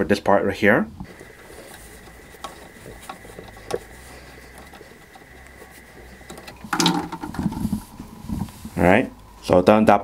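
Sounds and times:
hose clattering against bucket: 1.2s - 7.8s.

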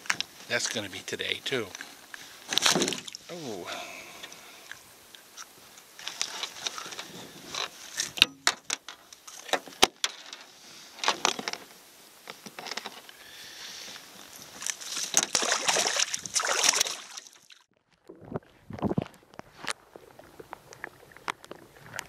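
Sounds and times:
water splashing: 2.4s - 4.9s, 14.6s - 17.7s.

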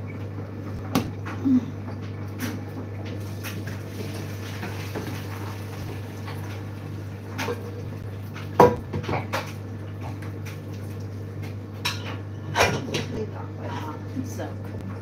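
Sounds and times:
pots and pans clattering: 8.4s - 10.2s, 11.8s - 13.4s.

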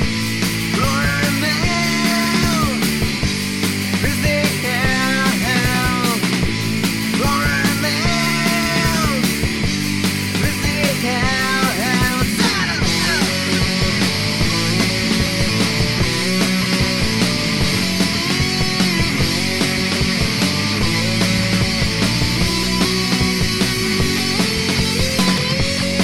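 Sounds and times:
rock band playing: 0.0s - 26.0s
person singing: 0.7s - 3.1s, 3.9s - 6.4s, 7.1s - 9.5s, 10.3s - 14.0s.

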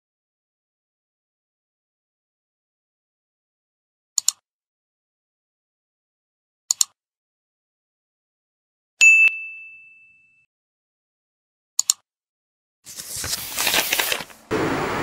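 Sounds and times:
mouse double click: 4.2s - 4.4s, 6.7s - 7.0s, 11.8s - 12.0s
bell ding: 9.0s - 10.5s.

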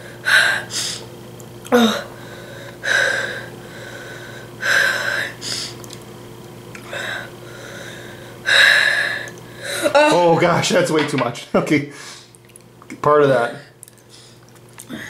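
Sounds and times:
boy breathing hard: 1.7s - 5.8s, 6.9s - 10.0s.

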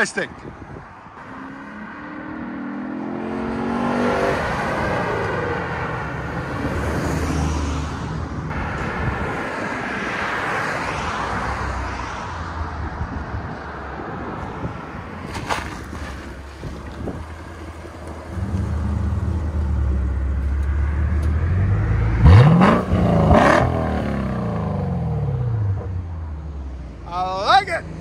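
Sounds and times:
car engine accelerating hard: 18.2s - 25.9s.

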